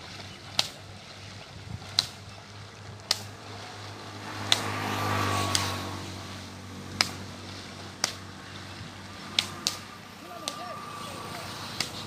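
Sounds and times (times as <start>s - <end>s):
sharp snaps: 0.5s - 0.8s, 1.9s - 2.2s, 3.0s - 3.4s, 4.4s - 6.0s, 6.9s - 7.4s, 8.0s - 8.3s, 9.3s - 10.9s, 11.6s - 12.0s.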